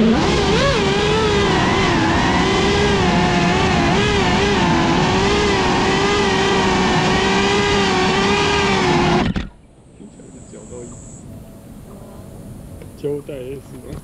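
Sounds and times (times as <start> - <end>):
drone motors whining: 0.0 - 14.0.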